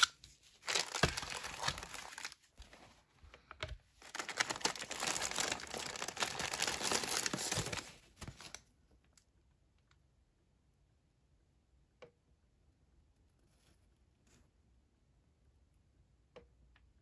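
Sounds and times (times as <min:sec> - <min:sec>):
plastic wrapping crinkling: 0:00.0 - 0:03.0, 0:04.0 - 0:08.7.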